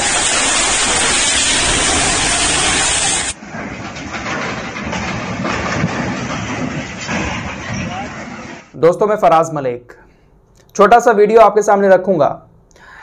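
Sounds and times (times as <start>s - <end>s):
floodwater rushing: 0.0s - 3.4s.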